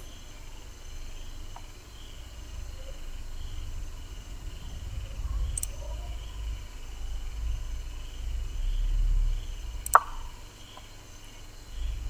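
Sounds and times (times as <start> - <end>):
low rumble: 1.9 - 10.6
sharp click: 9.8 - 10.3.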